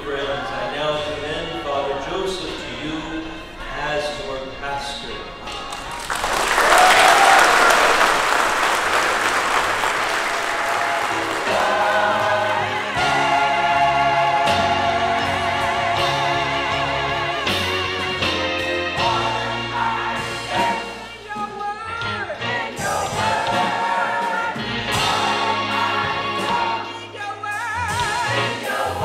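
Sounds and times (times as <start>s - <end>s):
choir singing with instruments: 0.0s - 29.0s
congregation applauding: 5.5s - 14.4s.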